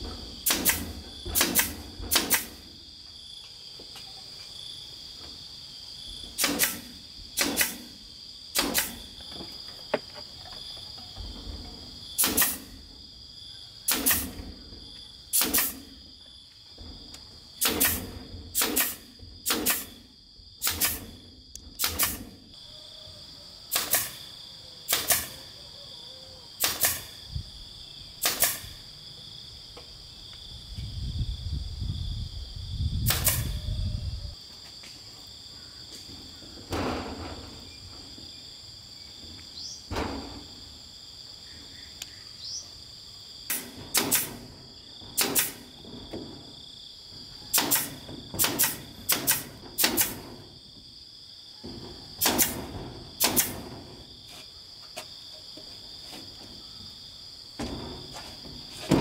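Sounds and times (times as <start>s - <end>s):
insects droning: 0.0s - 59.0s
hammer striking wood: 43.5s - 44.4s, 47.5s - 50.2s.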